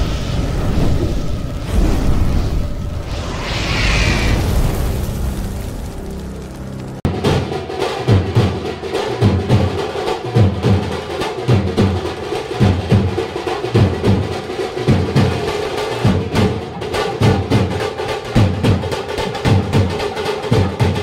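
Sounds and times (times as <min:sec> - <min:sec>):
drum-led music: 0:04.3 - 0:21.0.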